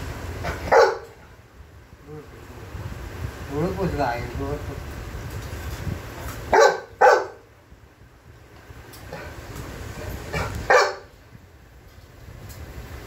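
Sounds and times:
dog barking: 0.4 - 1.2, 6.5 - 7.5, 10.3 - 11.1.

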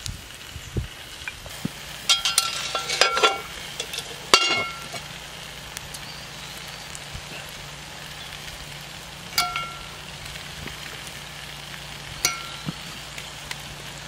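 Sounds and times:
steak frying in skillet: 0.0 - 14.0
ringing metal clank: 2.1 - 4.9, 9.4 - 9.9, 12.2 - 12.7
pot lid clinking: 2.1 - 5.0, 9.4 - 9.9.

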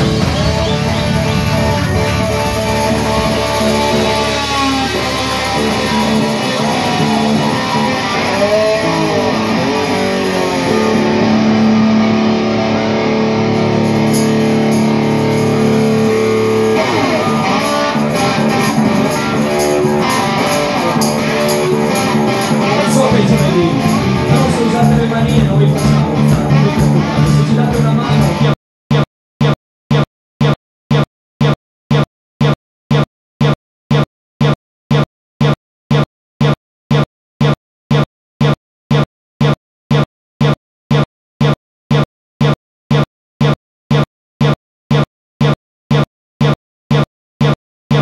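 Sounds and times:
drums and cymbals: 0.0 - 11.0, 13.8 - 28.6
amplified electric guitars: 0.0 - 28.6.

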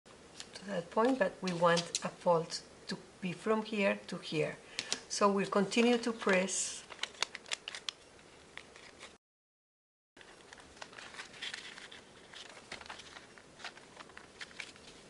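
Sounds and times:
paper rustling and creasing: 5.8 - 9.2, 10.2 - 15.0.

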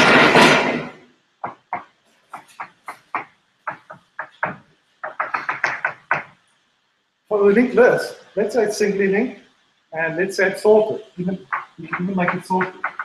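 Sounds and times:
chalkboard panel rumbling on track: 1.4 - 6.4
chalk tapping and scraping on board: 1.4 - 6.5, 11.3 - 13.0.

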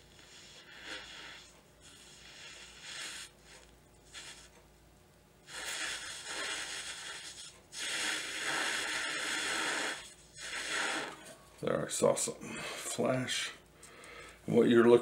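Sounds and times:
hissing breath through blowpipe: 0.0 - 4.5, 5.5 - 11.2.

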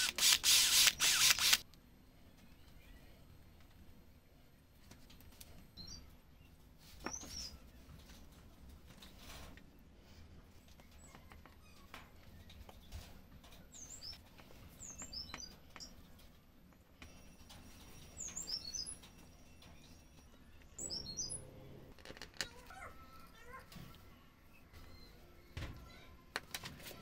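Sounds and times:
small bird chirping: 5.8 - 7.8, 10.8 - 16.1, 17.9 - 19.2, 19.8 - 21.8.

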